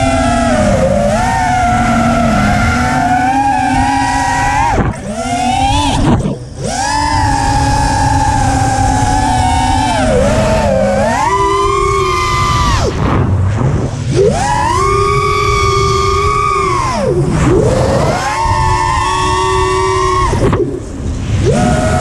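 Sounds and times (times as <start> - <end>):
drone motors whining: 0.0 - 22.0
rushing wind noise: 0.0 - 22.0.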